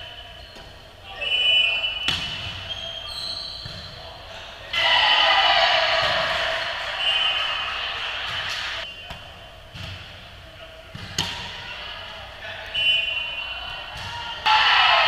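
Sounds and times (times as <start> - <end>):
sneaker squeaks on hardwood: 2.0 - 4.0.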